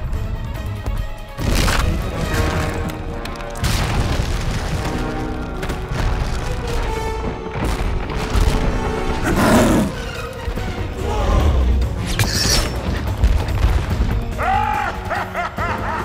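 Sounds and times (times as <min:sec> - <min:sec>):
orchestral film music: 0:00.0 - 0:16.0
rumble of crashing rock: 0:01.4 - 0:09.4, 0:13.0 - 0:14.4.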